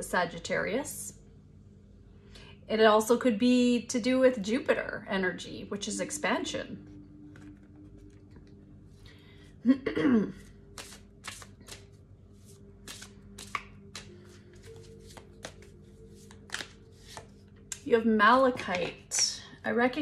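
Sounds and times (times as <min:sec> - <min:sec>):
faint background music: 0:00.0 - 0:20.0
cards shuffling: 0:07.3 - 0:08.5, 0:10.7 - 0:17.8, 0:18.5 - 0:19.2.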